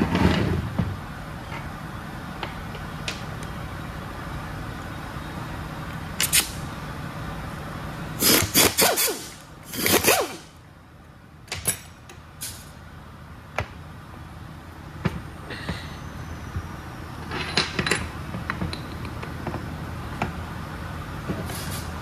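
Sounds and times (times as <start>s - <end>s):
steady shop hum: 0.0s - 22.0s
power ratchet whirring: 8.2s - 10.6s.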